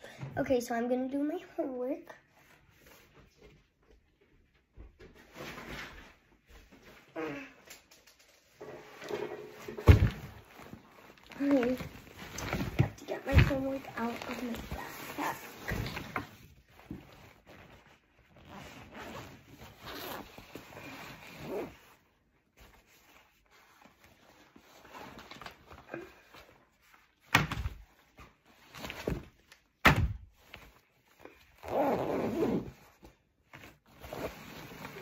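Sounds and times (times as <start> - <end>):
rustling and handling noise: 2.2 - 35.0
backpack unzipping: 18.4 - 21.9, 31.6 - 32.9, 33.9 - 35.0.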